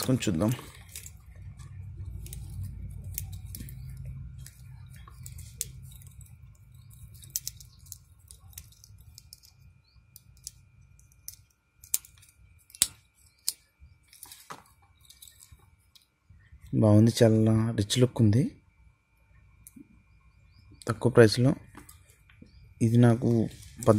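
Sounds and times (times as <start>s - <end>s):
low rumble: 0.0s - 7.3s
metal watch bracelet clinking: 2.1s - 9.6s.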